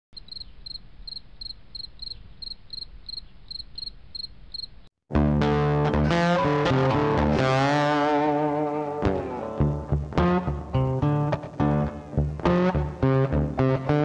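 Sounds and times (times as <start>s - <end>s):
cricket chirping: 0.2s - 4.9s
loud guitar music: 5.1s - 14.0s.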